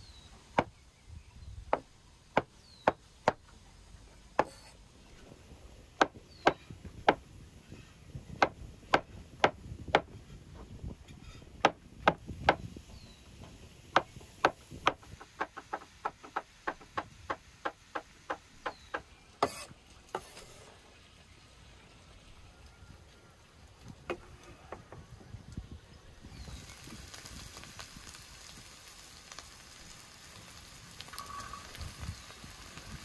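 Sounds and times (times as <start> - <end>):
cleaver chopping on wooden board: 4.4 - 4.7, 14.0 - 20.3.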